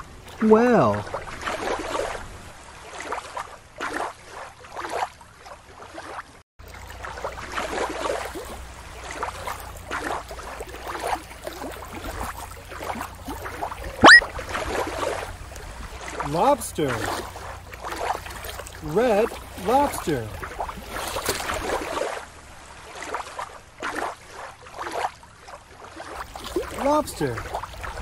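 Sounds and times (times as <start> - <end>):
water sloshing and lapping: 0.0 - 28.0
rising whistle-like sweep: 14.0 - 14.2.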